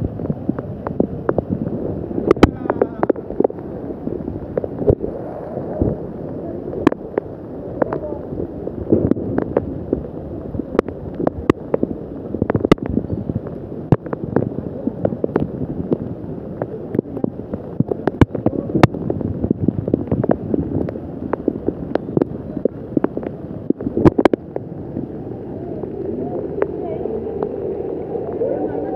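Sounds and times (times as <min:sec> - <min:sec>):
wind and rain hitting microphone: 0:00.0 - 0:28.9
faint voices: 0:00.2 - 0:09.8, 0:14.5 - 0:19.8, 0:21.6 - 0:28.9.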